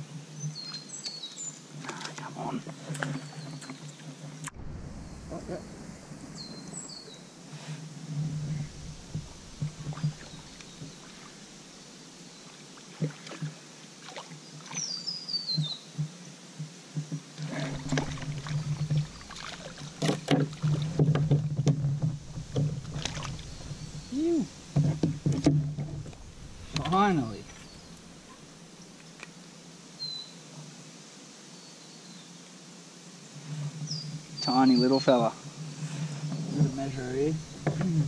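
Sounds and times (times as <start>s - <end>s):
bird calling: 8.4s - 11.7s, 17.6s - 20.0s, 22.4s - 29.2s.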